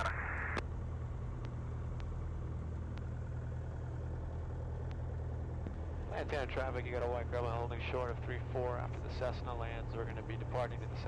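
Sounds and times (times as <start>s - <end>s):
radio hiss: 0.0s - 0.6s
airplane piston engine idling: 0.6s - 11.0s
faint clicks: 1.4s - 2.2s, 2.8s - 3.2s, 4.8s - 5.8s.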